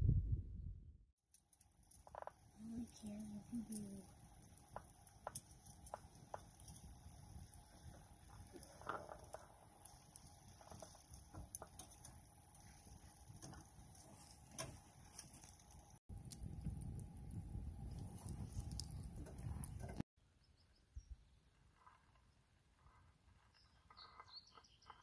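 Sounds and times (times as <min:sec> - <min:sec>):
low steady rumble: 0:00.0 - 0:01.0
campfire crackling and popping: 0:01.3 - 0:20.0.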